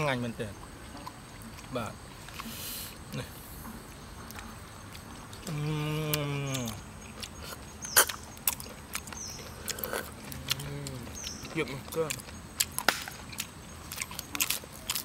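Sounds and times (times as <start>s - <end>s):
sharp clicks of eating snails: 0.0s - 15.0s
person humming: 5.4s - 6.8s.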